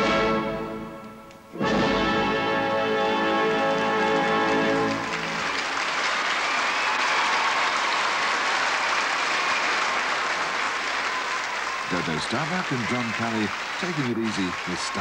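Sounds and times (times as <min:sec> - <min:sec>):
orchestral waltz chord: 0:00.0 - 0:05.0
audience applauding: 0:03.0 - 0:15.0.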